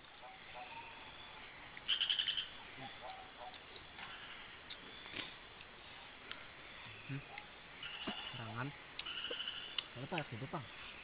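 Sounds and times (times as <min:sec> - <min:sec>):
crickets droning: 0:00.0 - 0:11.0.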